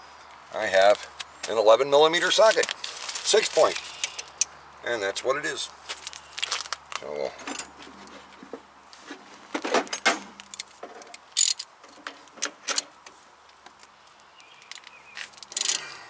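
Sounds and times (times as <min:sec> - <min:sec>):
steel tools clinking: 0:15.4 - 0:15.9.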